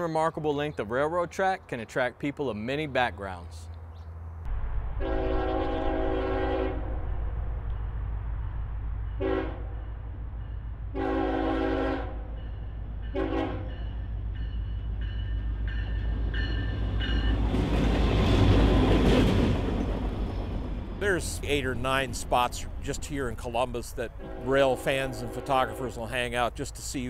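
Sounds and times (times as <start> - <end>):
locomotive rumbling: 0.0 - 27.0
locomotive air horn blasts: 5.0 - 7.0, 9.2 - 9.8, 10.9 - 12.3, 13.1 - 13.8, 24.2 - 26.2.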